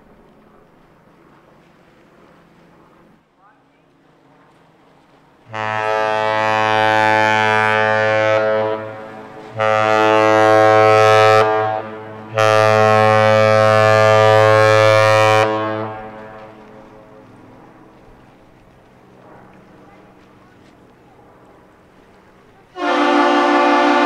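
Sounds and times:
ship air horn blasts: 5.4 - 16.8, 22.7 - 24.0.

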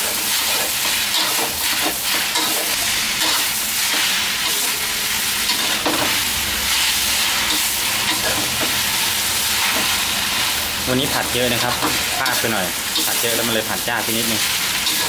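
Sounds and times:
spatula scraping a pan: 0.0 - 4.8, 14.1 - 15.0
food sizzling in a wok: 0.0 - 15.0.

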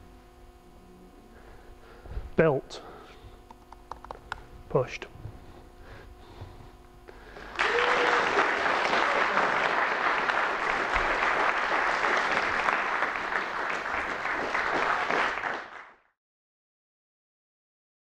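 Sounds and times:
audience applauding: 7.4 - 16.1.

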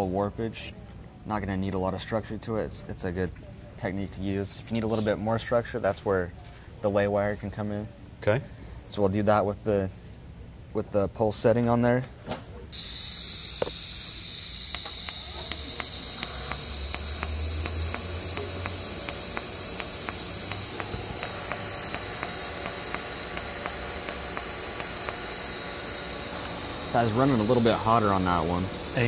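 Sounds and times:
welding arc hissing: 12.8 - 29.0
faint regular ticks: 13.5 - 25.8.

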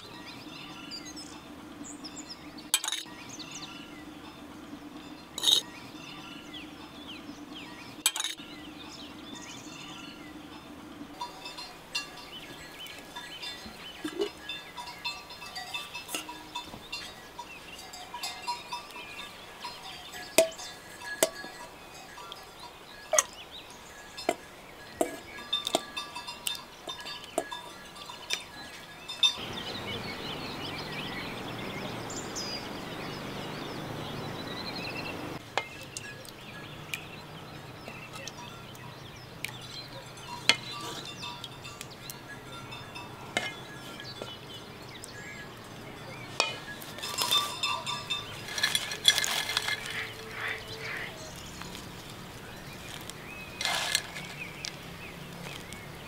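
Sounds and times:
ladle clinking against metal pot: 2.7 - 3.1, 5.4 - 5.7, 8.0 - 8.4, 11.2 - 17.2, 17.8 - 22.4, 24.2 - 29.4, 38.1 - 44.6, 46.3 - 50.4.

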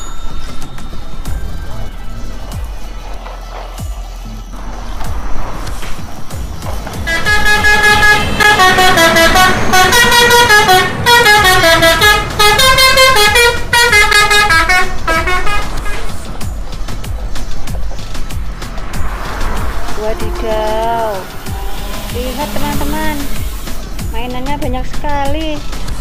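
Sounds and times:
musical vehicle horn tune: 7.0 - 16.3, 19.4 - 24.0.

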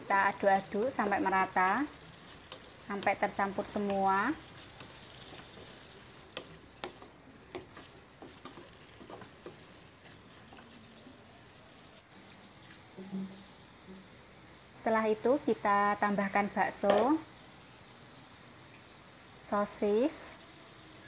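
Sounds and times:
spatula scraping a pan: 0.0 - 10.8
vegetables sizzling in a wok: 0.0 - 21.0.

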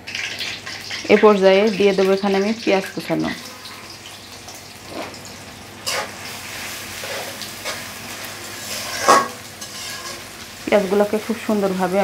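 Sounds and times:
onions sizzling in hot oil: 0.0 - 12.0
spatula scraping pan: 5.8 - 10.4.

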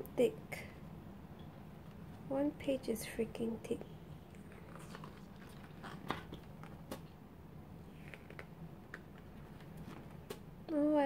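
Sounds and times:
calendar pages rustling: 4.4 - 7.1, 8.0 - 10.4.

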